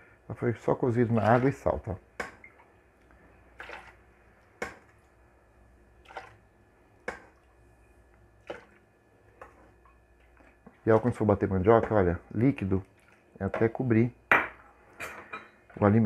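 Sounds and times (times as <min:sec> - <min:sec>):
water splashing: 0:03.5 - 0:04.0, 0:06.0 - 0:06.4.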